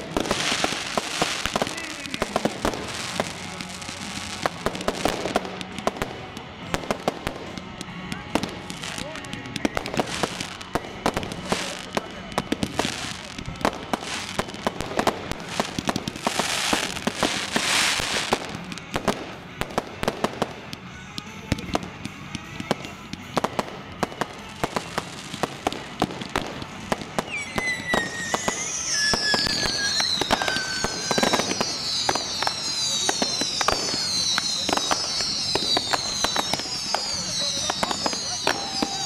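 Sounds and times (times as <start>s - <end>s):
firework bangs and crackles: 0.0s - 39.0s
whistling fireworks: 0.0s - 39.0s
hissing rush: 27.0s - 39.0s.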